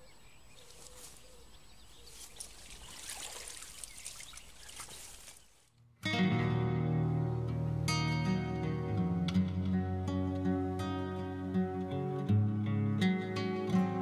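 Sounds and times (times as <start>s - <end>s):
water splashing in shallows: 2.1s - 5.6s
water dripping off wet sling: 2.3s - 5.4s
guitar music: 5.8s - 14.0s.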